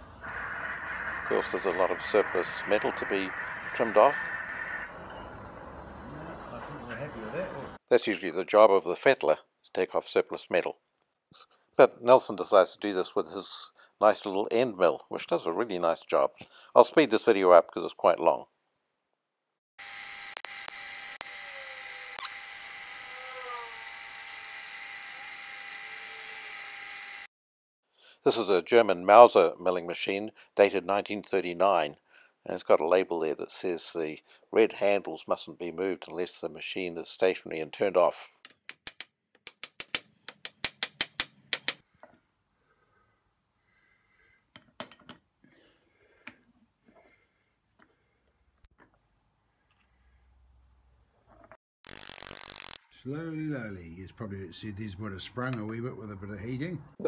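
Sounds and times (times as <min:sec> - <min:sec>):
milling machine whine and hiss: 0:00.0 - 0:07.8
hammer tapping metal punch: 0:38.5 - 0:41.8.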